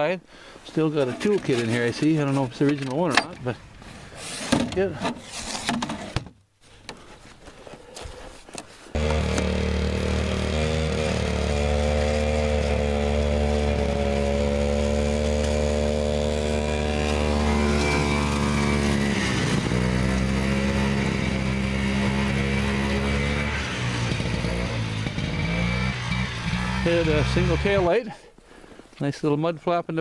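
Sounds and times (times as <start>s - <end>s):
snowmobile engine running: 9.0s - 28.0s.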